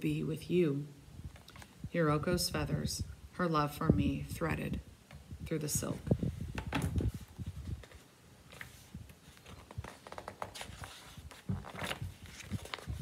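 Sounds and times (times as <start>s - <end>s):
book page rustling: 6.0s - 13.0s.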